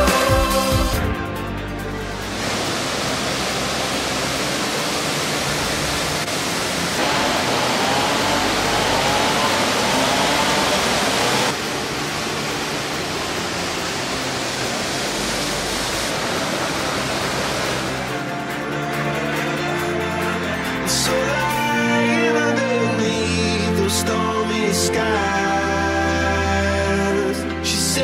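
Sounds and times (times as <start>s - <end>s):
water rushing over rocks: 2.0s - 21.6s.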